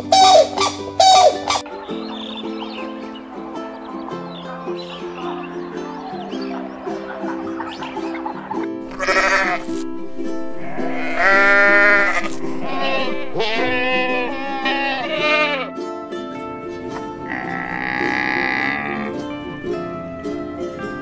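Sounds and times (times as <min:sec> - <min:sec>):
ukulele background music: 0:00.0 - 0:21.0
goat bleating: 0:08.9 - 0:09.8, 0:10.6 - 0:15.8, 0:17.2 - 0:19.2.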